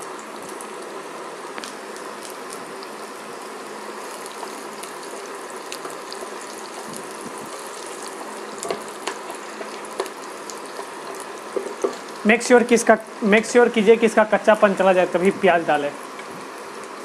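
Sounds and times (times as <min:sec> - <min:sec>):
garlic sizzling in hot oil: 0:00.0 - 0:17.0
wooden spatula knocking on pan: 0:11.5 - 0:12.0.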